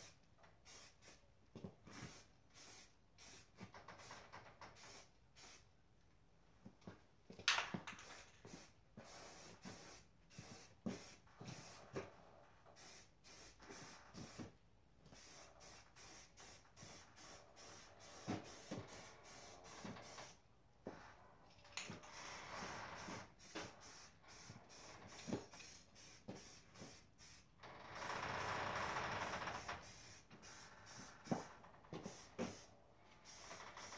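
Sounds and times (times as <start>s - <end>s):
spray paint can spraying: 0.0s - 1.2s, 1.9s - 3.7s, 4.8s - 5.6s, 7.5s - 12.0s, 12.8s - 14.5s, 15.1s - 20.4s, 23.0s - 27.5s, 29.8s - 33.9s.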